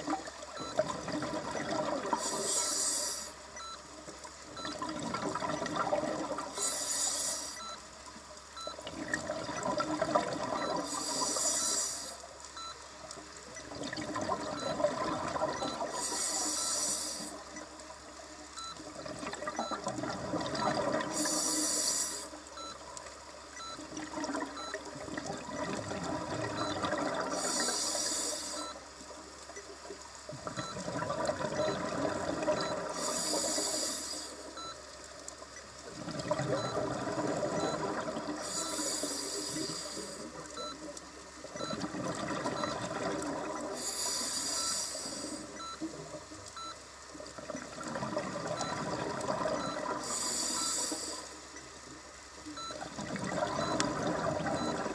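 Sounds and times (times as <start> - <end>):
exhaled bubbles gurgling: 0.0 - 3.8, 4.5 - 7.8, 8.6 - 12.0, 13.6 - 17.6, 18.6 - 22.7, 23.6 - 28.7, 30.3 - 34.7, 35.8 - 40.8, 41.4 - 46.3, 47.2 - 51.2, 52.5 - 54.9
regulator inhalation hiss: 2.2 - 3.4, 6.6 - 7.6, 10.9 - 12.2, 16.0 - 17.4, 21.1 - 22.4, 27.4 - 28.6, 33.0 - 34.4, 38.4 - 40.3, 43.8 - 45.5, 50.0 - 51.4.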